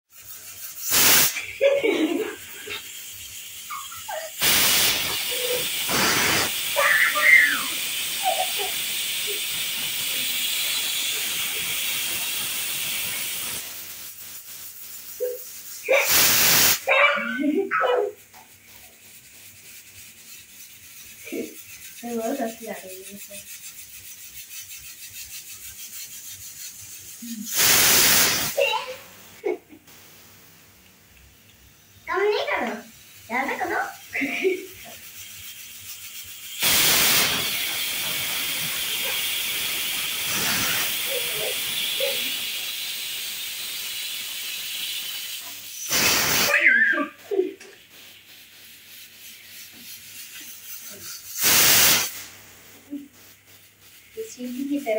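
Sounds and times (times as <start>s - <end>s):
pressure cooker whistle hissing: 0.8s - 1.4s, 3.3s - 14.6s, 15.3s - 16.9s, 27.5s - 28.6s, 36.4s - 47.2s, 51.3s - 52.3s
voices exclaiming: 6.7s - 8.8s, 16.8s - 18.2s, 46.4s - 47.6s.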